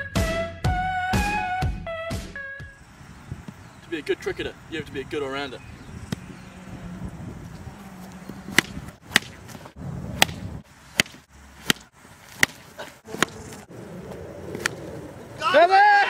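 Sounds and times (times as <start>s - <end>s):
ball knocking against wooden bat: 6.0s - 6.3s, 8.1s - 13.6s.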